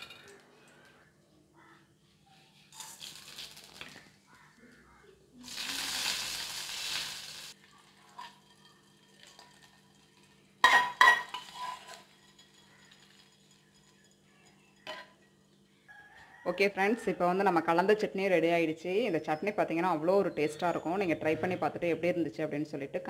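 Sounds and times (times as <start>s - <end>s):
seeds sizzling in hot oil: 2.7s - 4.0s, 5.4s - 14.3s
metal spoon clinking on bowl: 10.6s - 15.3s.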